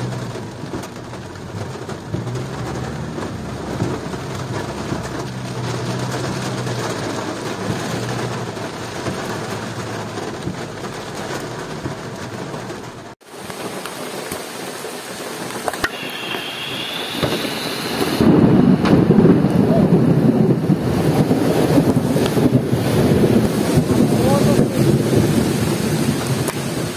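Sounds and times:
heavy rain on truck windscreen: 0:00.0 - 0:26.9
rain falling outdoors: 0:00.0 - 0:26.9
wind noise on microphone: 0:15.8 - 0:26.9.

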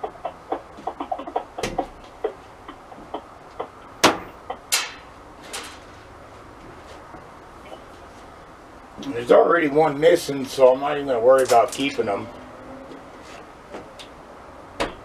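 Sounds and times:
sharp snaps: 0:03.1 - 0:05.1.

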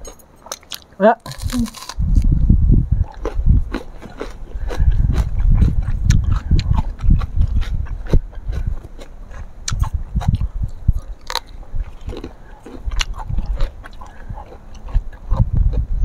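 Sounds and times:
chewing food: 0:03.0 - 0:15.9.

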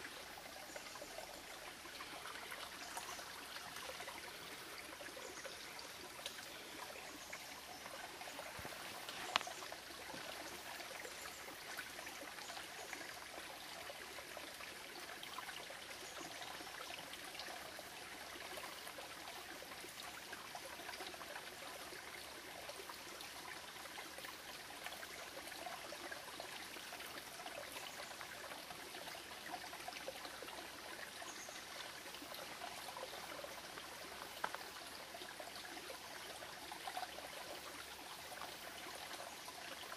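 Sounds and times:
creek babbling over stones: 0:00.0 - 0:39.9.

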